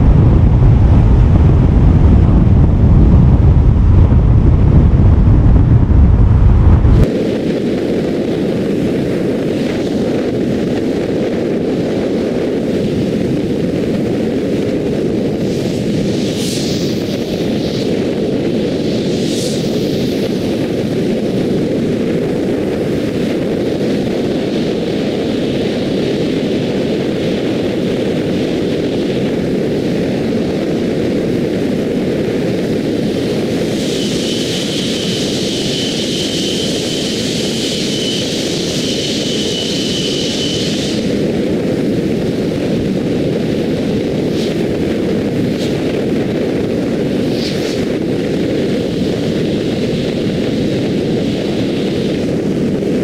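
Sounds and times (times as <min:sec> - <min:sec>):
wind and road noise: 0:00.0 - 0:53.0
high hiss with whine: 0:15.1 - 0:53.0.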